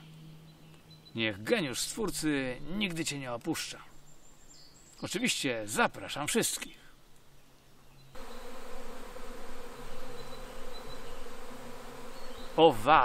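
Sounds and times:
insect swarm buzzing: 8.2s - 13.0s.

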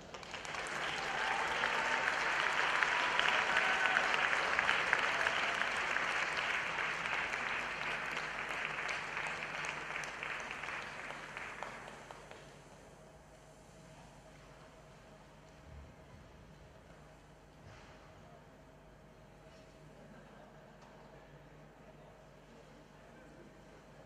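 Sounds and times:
audience applauding: 0.0s - 12.5s.

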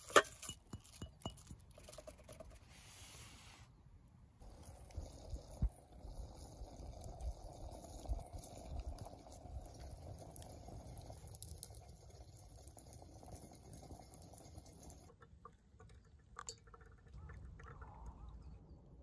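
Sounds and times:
water simmering in a kettle: 4.4s - 19.0s.

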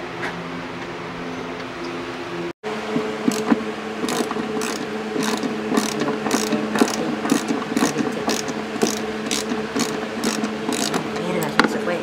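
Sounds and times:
steady hum: 0.0s - 12.0s
ratchet wrench clicking: 3.2s - 11.2s.

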